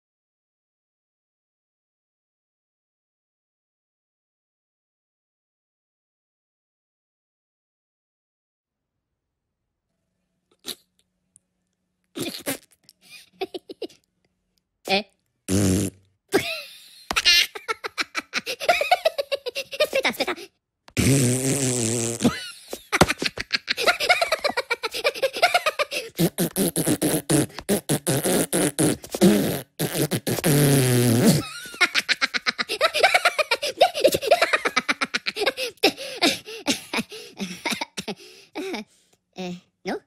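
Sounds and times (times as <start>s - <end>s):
giggling and laughter: 13.0s - 14.0s, 16.3s - 20.5s, 22.3s - 26.2s, 31.4s - 38.9s
cartoon voices blowing raspberries: 21.0s - 22.4s, 25.9s - 31.5s.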